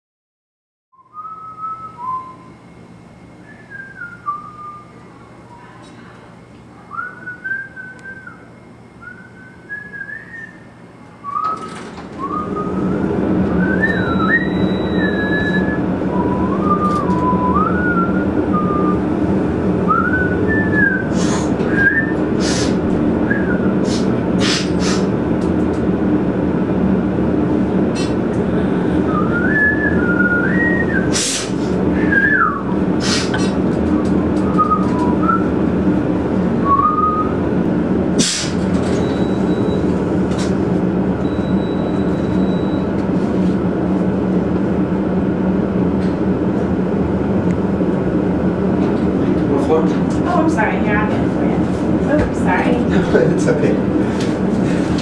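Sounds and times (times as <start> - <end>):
man whistling: 1.0 - 2.6, 3.4 - 5.6, 6.9 - 19.1, 19.9 - 24.1, 29.0 - 33.3, 33.9 - 35.5, 36.6 - 37.4
low elevator hum: 1.0 - 55.0.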